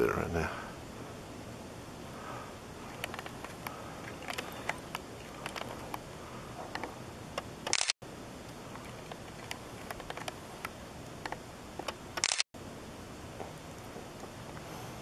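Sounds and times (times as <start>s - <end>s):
steady hiss: 0.0s - 15.0s
clicks and taps on camera: 3.0s - 6.0s, 9.1s - 12.4s.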